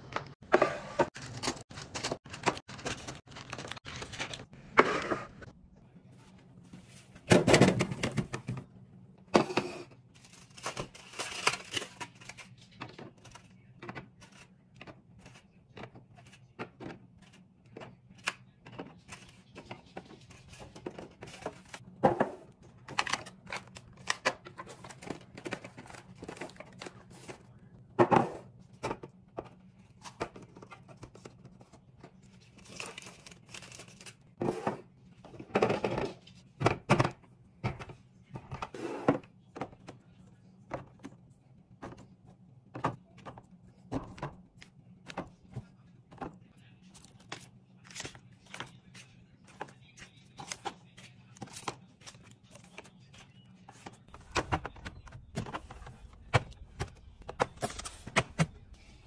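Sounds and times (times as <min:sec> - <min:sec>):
items knocking into plastic bins: 0:07.2 - 0:08.7.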